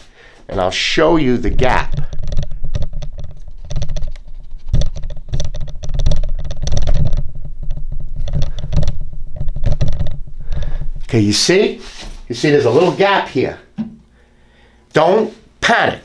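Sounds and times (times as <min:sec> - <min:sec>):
dull low rumble: 0:06.2 - 0:11.2.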